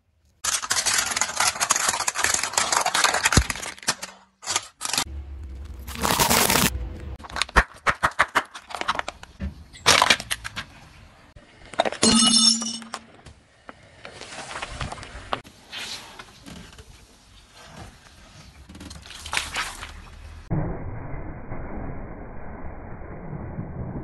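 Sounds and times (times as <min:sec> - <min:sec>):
objects crackling and snapping: 0:00.2 - 0:10.8
plastic crinkling under tyre: 0:05.4 - 0:06.7.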